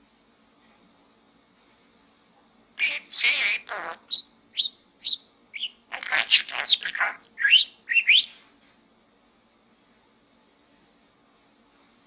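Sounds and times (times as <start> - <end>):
budgerigar chirping and chattering: 2.8 - 8.4.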